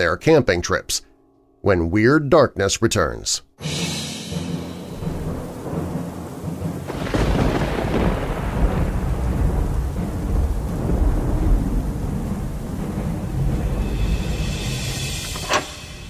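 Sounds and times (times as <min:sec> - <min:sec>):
thunderclap: 0:04.3 - 0:16.0
steady rain: 0:04.5 - 0:15.4
rolling thunder rumble: 0:04.6 - 0:15.2.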